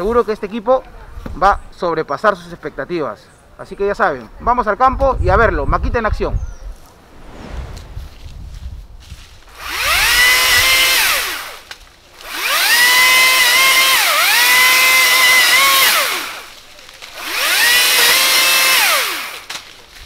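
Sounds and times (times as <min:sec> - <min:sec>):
electric pole saw running: 0:09.6 - 0:19.5.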